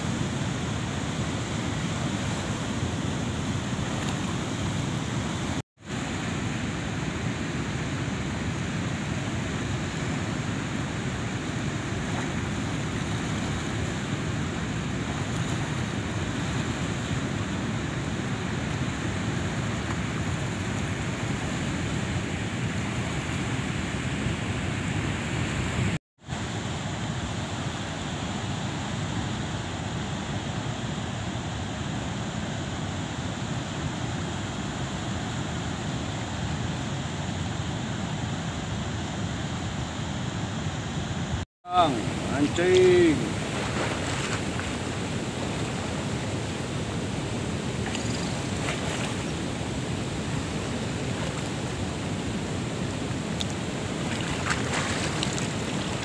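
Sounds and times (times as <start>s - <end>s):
water rushing through sluice gates: 41.7s - 56.0s.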